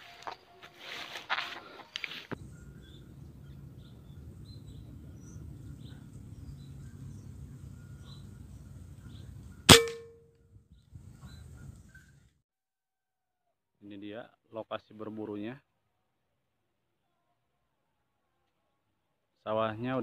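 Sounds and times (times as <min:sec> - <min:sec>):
wind rumble: 0:02.4 - 0:09.7, 0:10.4 - 0:12.3
air rifle shot with metallic ring: 0:09.7 - 0:10.3.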